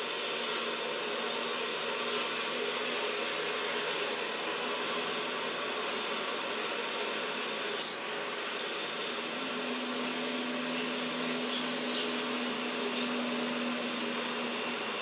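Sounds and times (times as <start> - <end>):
steady hiss: 0.0 - 15.0
phone camera click-beep: 7.8 - 8.0.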